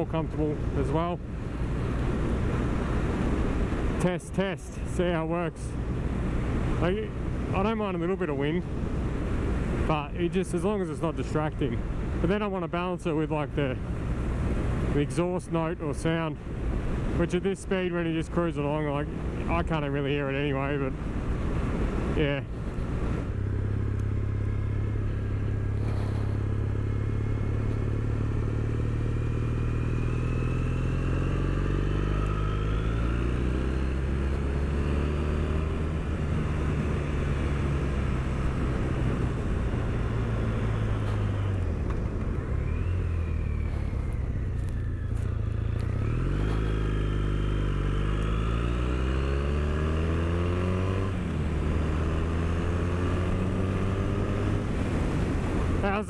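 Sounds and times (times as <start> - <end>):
motorcycle engine revving: 19.5 - 56.0.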